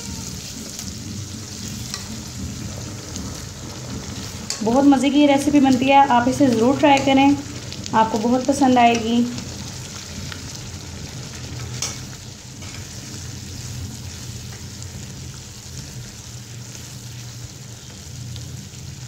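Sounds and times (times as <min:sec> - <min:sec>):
food sizzling in oil: 0:00.0 - 0:19.0
spatula scraping a pan: 0:00.2 - 0:04.8.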